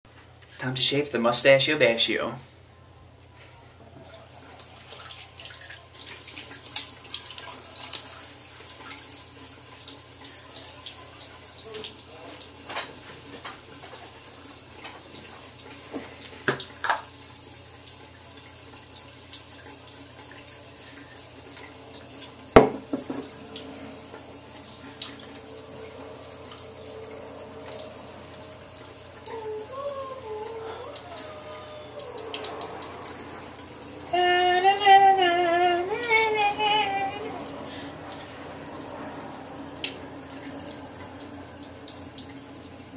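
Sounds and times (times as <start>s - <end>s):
tap water running and splashing: 3.8s - 42.9s
sharp knock: 22.6s - 23.2s.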